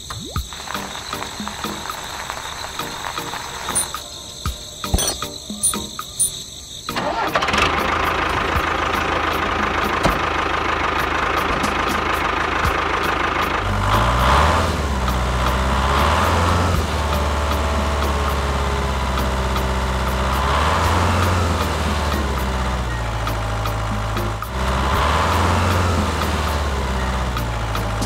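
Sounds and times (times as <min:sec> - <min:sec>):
diesel tractor engine knocking: 0:07.0 - 0:28.0.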